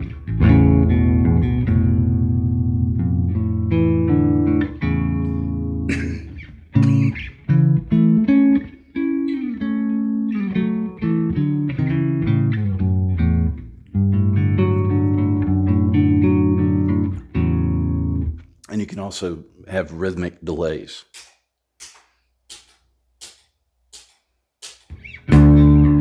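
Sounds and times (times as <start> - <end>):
bass guitar arpeggios: 0.0 - 18.5, 25.0 - 26.0
scratchy pick noise: 0.0 - 18.5, 21.2 - 26.0.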